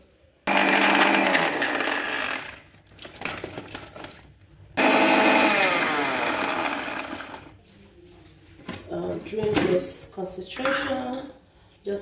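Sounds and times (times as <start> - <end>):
electric blender chopping: 0.5 - 2.6, 4.8 - 7.5.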